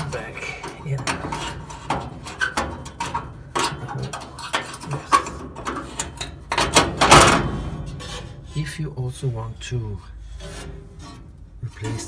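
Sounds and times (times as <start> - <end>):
metal clicks and knocks: 0.0 - 8.4.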